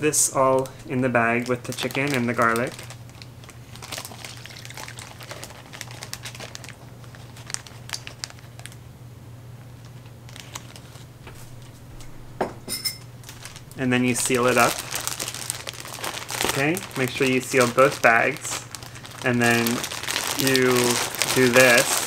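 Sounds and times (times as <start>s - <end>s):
plastic bag crinkling: 0.4s - 8.8s, 9.8s - 12.2s, 13.0s - 22.0s
liquid pouring: 3.9s - 5.6s
low hum: 8.9s - 17.0s.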